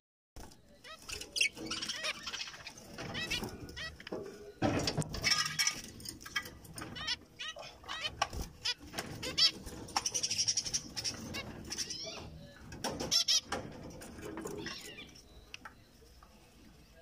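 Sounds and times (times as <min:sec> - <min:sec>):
finches calling: 0:00.7 - 0:04.1, 0:05.2 - 0:13.6.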